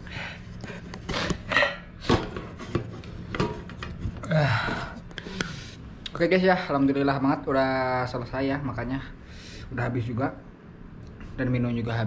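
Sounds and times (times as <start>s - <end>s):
man groaning: 4.2s - 5.0s
man blowing hissing breaths: 4.7s - 5.9s.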